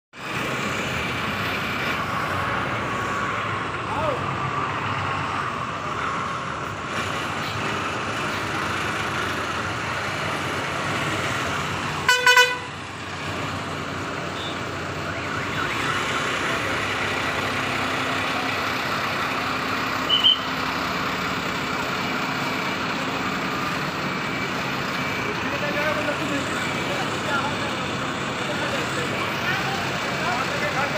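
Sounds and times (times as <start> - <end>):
bus engines running: 0.2 - 30.9
vehicle horn toot: 12.0 - 12.7, 14.4 - 14.6, 20.1 - 20.5.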